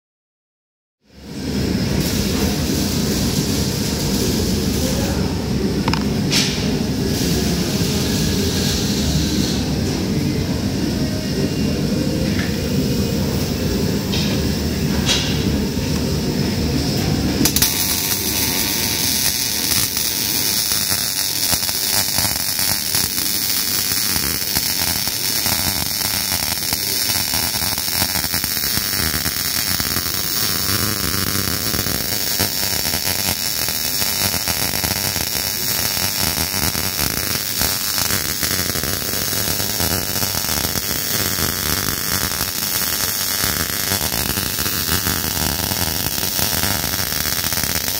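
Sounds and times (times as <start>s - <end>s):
welding arc crackling hiss: 1.1s - 10.4s, 12.0s - 47.9s.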